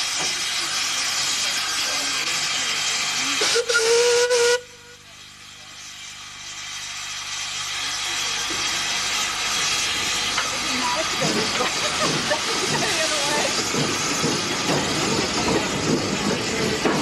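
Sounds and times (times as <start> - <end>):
steady steam hiss: 0.0 - 17.0
steam locomotive whistle: 3.4 - 5.0.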